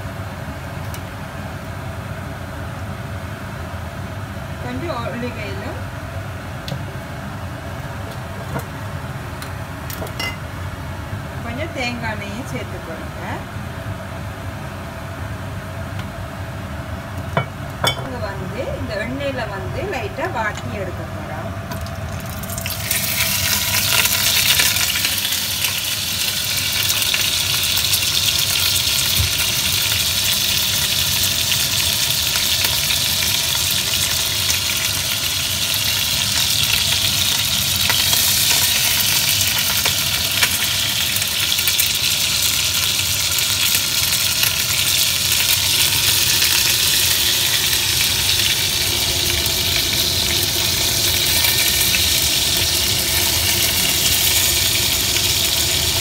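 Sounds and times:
faint steady hum: 0.0s - 56.0s
hot oil sizzling and crackling: 21.6s - 56.0s.

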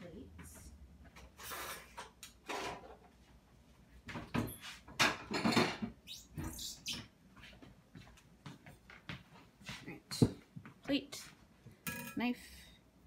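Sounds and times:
drawers and cupboards opening and shutting: 1.2s - 3.2s, 4.1s - 6.0s
dishes and cutlery clattering: 5.0s - 5.9s.

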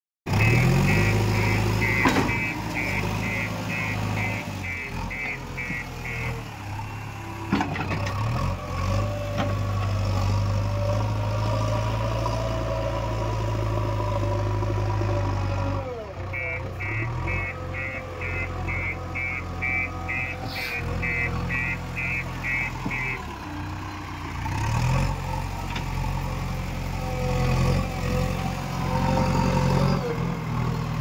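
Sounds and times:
reversing alarm beeping: 0.3s - 7.1s, 16.4s - 23.3s
diesel engine running: 0.3s - 31.0s.

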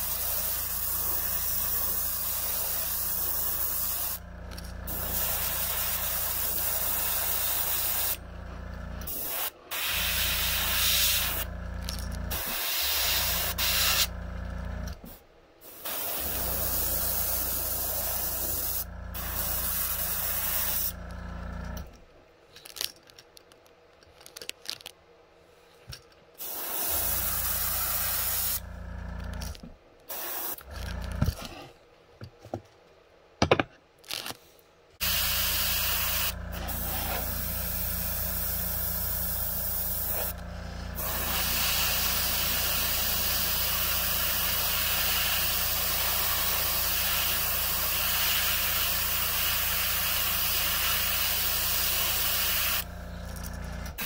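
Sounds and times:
airbrush spraying hiss: 0.0s - 4.2s, 4.9s - 8.2s, 9.1s - 11.5s, 12.3s - 14.1s, 15.6s - 21.0s, 26.4s - 28.6s, 30.1s - 30.6s, 35.0s - 52.9s.

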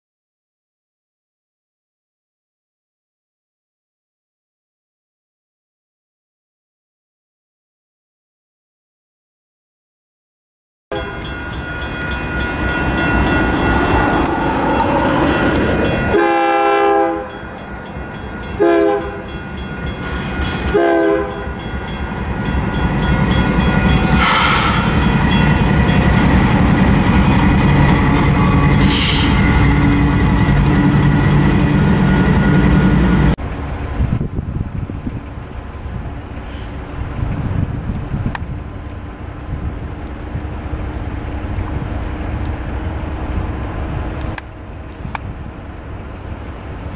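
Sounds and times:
locomotive air horn blasts: 10.9s - 11.3s, 16.0s - 17.4s, 18.6s - 19.3s, 20.7s - 21.6s, 24.0s - 25.2s, 28.3s - 30.0s
crossing bell ringing: 10.9s - 33.2s
diesel locomotive engine running: 11.1s - 46.9s.

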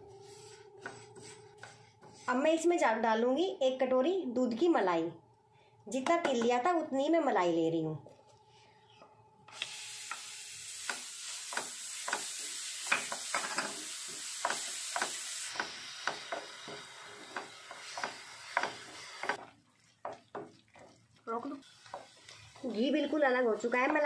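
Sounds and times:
wooden spatula scraping a pan: 0.1s - 2.6s, 15.6s - 24.0s
cream sizzling in a hot pan: 9.6s - 24.0s.

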